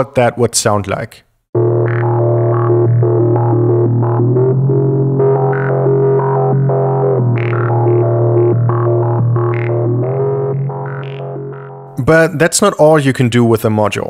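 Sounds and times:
steady synth bass tone: 0:01.6 - 0:12.1
synthesizer sequence of short notes: 0:01.6 - 0:12.1.

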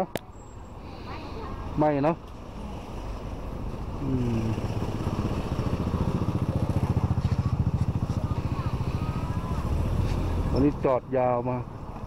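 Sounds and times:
engine running: 0:03.3 - 0:10.9.

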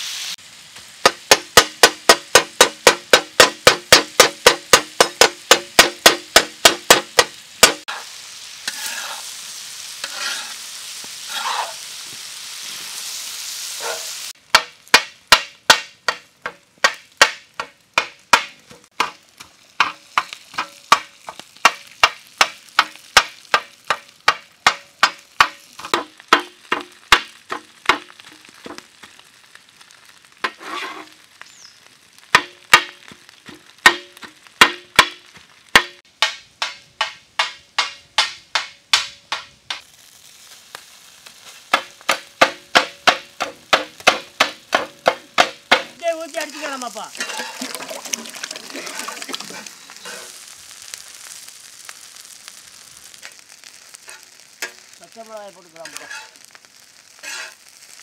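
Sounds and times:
meat sizzling: 0:00.0 - 0:38.7, 0:39.6 - 0:58.0
spatula striking iron pan: 0:01.0 - 0:08.0, 0:14.5 - 0:28.8, 0:32.3 - 0:39.8, 0:41.7 - 0:46.0, 0:47.2 - 0:47.7, 0:54.0 - 0:55.0, 0:55.8 - 0:56.5.

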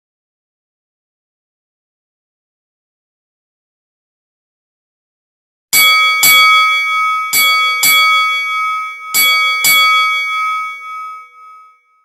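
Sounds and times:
brass hand bell ringing: 0:05.8 - 0:12.0.

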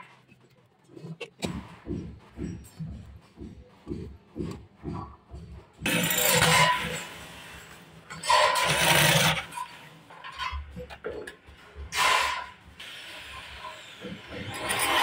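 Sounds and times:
electric drill boring metal: 0:08.3 - 0:09.5.

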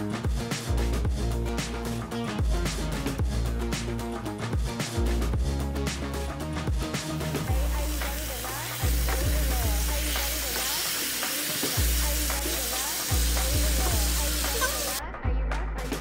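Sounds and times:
background music with bass: 0:00.0 - 0:10.8, 0:11.7 - 0:16.0
chicken sizzling in a frying pan: 0:07.5 - 0:15.0.

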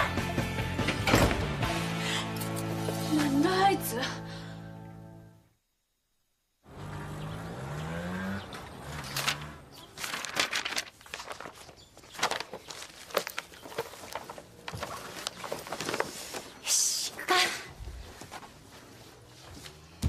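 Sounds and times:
paper rustling: 0:09.0 - 0:16.6
clothes and objects handled: 0:09.0 - 0:20.0.

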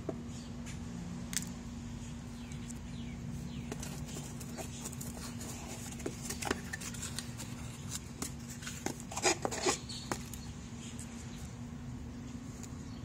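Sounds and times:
steady low hum: 0:00.0 - 0:13.0
cardboard scraping and clicking: 0:03.7 - 0:10.4.

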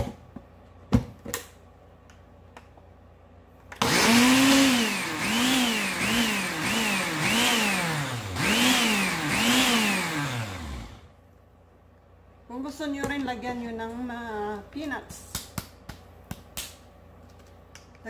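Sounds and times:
blender blending herbs: 0:03.8 - 0:11.1.

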